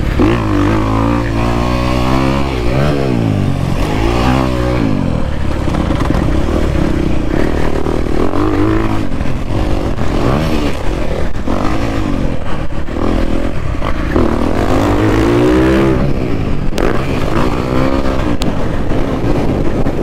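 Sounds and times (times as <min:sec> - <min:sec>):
dirt bike engine revving: 0:00.0 - 0:19.9.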